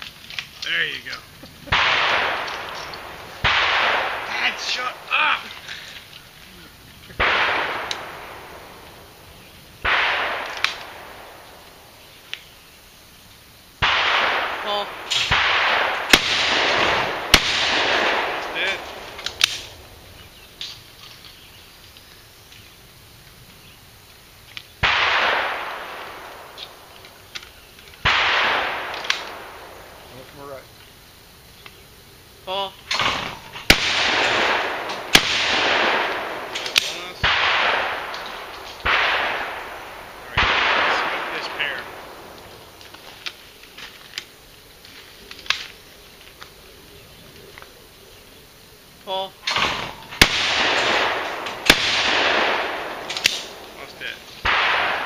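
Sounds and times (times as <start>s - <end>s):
shotgun shots echoing: 0.7s - 5.6s, 7.1s - 12.0s, 13.8s - 20.8s, 24.8s - 30.6s, 32.6s - 42.8s, 49.2s - 55.0s.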